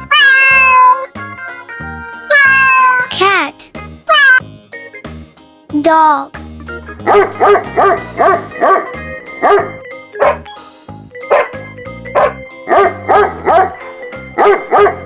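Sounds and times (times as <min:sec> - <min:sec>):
light background music: 0:00.0 - 0:15.0
dog barking: 0:07.0 - 0:10.5, 0:11.3 - 0:13.8, 0:14.4 - 0:15.0.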